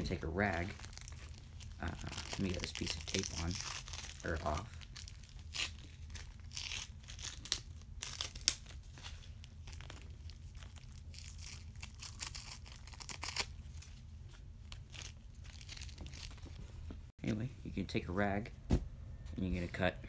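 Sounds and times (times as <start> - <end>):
adhesive tape ripping: 0.5 - 13.8.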